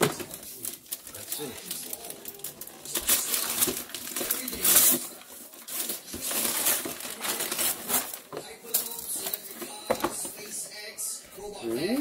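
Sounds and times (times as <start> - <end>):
wrapping paper tearing: 0.0 - 9.6.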